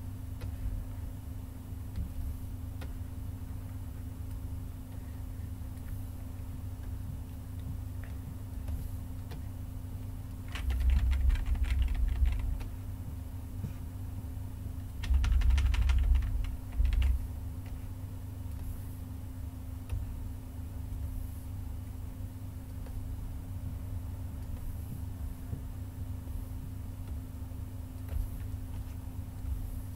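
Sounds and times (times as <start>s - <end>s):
steady low hum: 0.0s - 29.9s
keyboard and mouse clicking: 10.5s - 12.7s, 15.0s - 17.8s.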